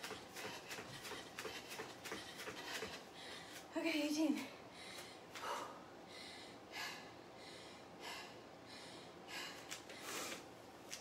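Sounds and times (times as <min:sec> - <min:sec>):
woman breathing hard: 0:00.0 - 0:03.7, 0:04.6 - 0:10.6.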